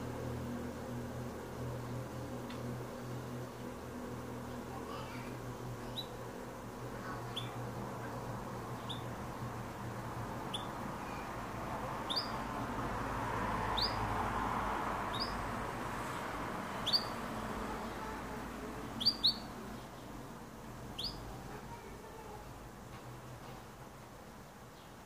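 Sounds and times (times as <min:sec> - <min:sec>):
canary chirping: 0:07.0 - 0:07.6, 0:08.8 - 0:09.2, 0:10.4 - 0:11.3, 0:12.0 - 0:12.6, 0:13.7 - 0:14.2, 0:15.0 - 0:15.5, 0:16.8 - 0:18.2, 0:18.9 - 0:20.1, 0:20.9 - 0:21.3.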